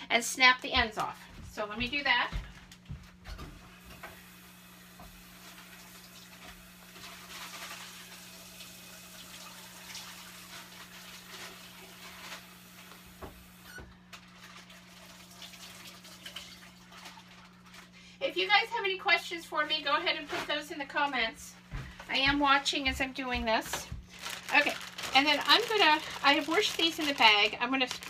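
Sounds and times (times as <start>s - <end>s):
tap water running: 3.4s - 18.0s, 21.7s - 28.0s
peas rinsed in bag: 6.8s - 8.4s, 23.6s - 28.0s.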